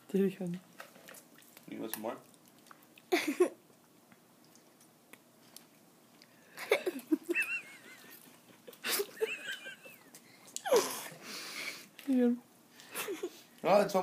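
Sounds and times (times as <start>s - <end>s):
man chuckling: 6.6s - 10.1s.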